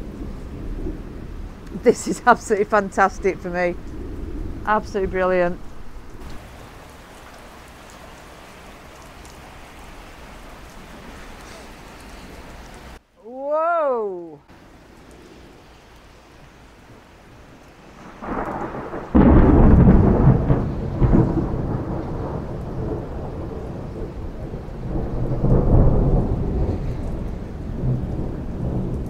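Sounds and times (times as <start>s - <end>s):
thunder crack and rumble: 0.0s - 6.6s, 17.9s - 29.0s
rain falling: 0.0s - 29.0s.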